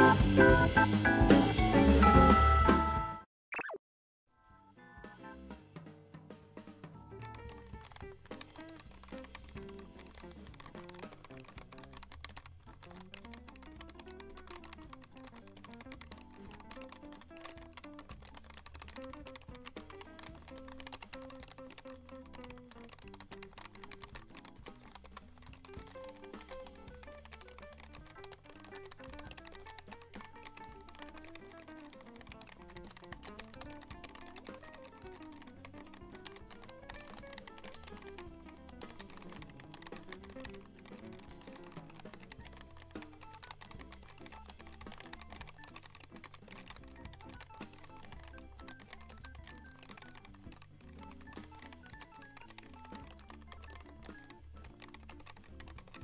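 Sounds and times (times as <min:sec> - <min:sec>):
background music: 0:00.0 - 0:03.2, 0:04.4 - 0:56.0
background music with bass line: 0:00.0 - 0:03.2
mechanical keyboard typing: 0:07.0 - 0:56.0.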